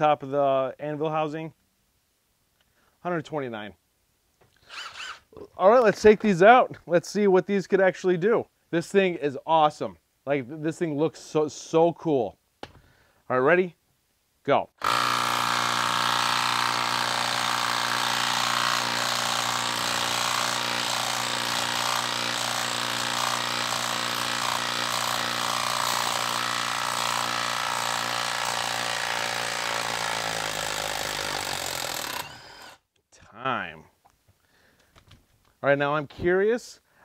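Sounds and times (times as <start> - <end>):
impact wrench hammering: 14.8 - 32.8.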